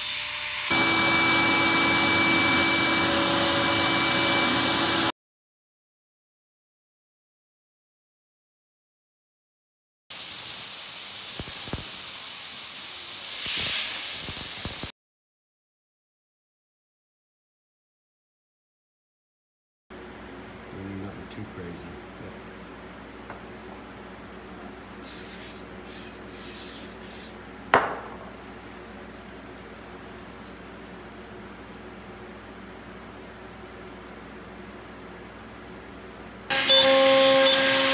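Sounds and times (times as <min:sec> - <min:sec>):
compressed air hissing: 0:10.1 - 0:14.9, 0:25.0 - 0:27.4
sharp knock: 0:27.8 - 0:28.3.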